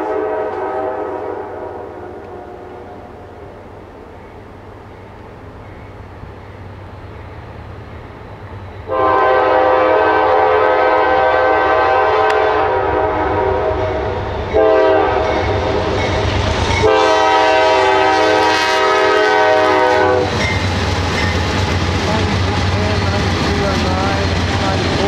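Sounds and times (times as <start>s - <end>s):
locomotive air horn blasts: 0.0s - 3.1s, 8.9s - 15.9s, 16.8s - 20.4s
diesel locomotive rumble: 2.1s - 25.0s.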